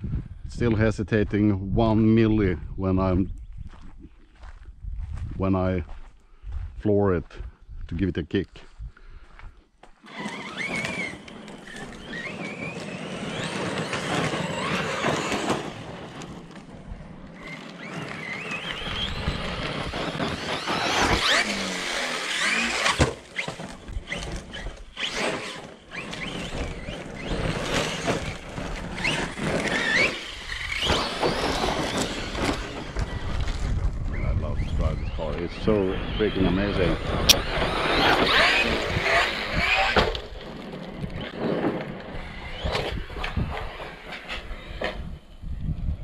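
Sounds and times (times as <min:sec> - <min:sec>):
tyres on the ground: 0:09.2 - 0:34.7, 0:35.4 - 0:45.4
electric motor whining: 0:10.0 - 0:45.6.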